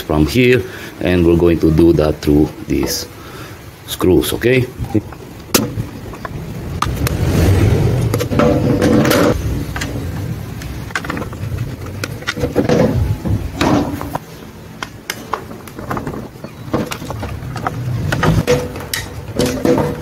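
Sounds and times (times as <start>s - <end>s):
plastic parts and tools clicking: 8.2s - 14.2s.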